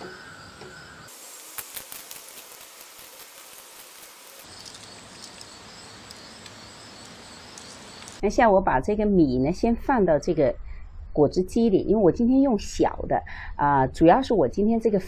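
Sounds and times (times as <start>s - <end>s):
insects chirring: 0.0s - 8.2s.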